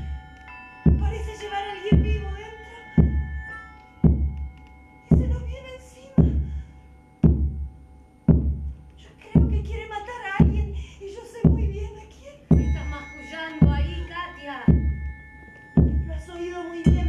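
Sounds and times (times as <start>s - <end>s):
faint steady tones: 0.0s - 17.0s
woman speaking: 1.0s - 3.0s, 5.2s - 6.5s, 9.0s - 14.8s, 16.1s - 17.0s
deep booming drum thuds: 7.2s - 7.7s, 8.3s - 8.7s, 9.4s - 9.8s, 10.4s - 10.8s.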